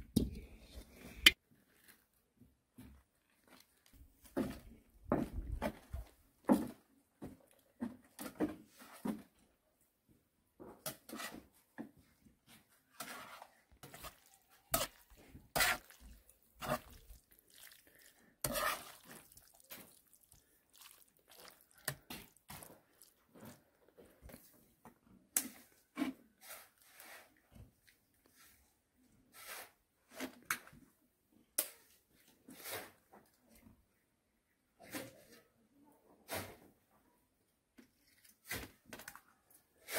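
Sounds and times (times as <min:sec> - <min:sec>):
spoon scraping vegetables in pan: 0:10.9 - 0:11.4, 0:12.9 - 0:20.2.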